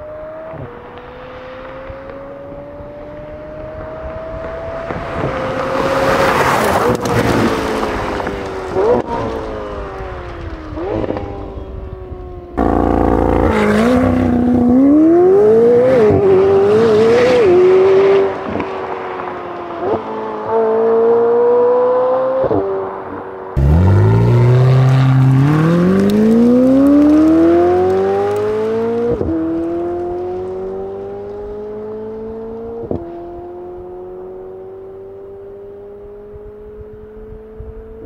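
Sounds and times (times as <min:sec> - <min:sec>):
exhaust blips at gear changes: 0:12.6 - 0:16.6, 0:23.6 - 0:30.4
sports car engine revving: 0:12.6 - 0:18.6, 0:23.6 - 0:37.9.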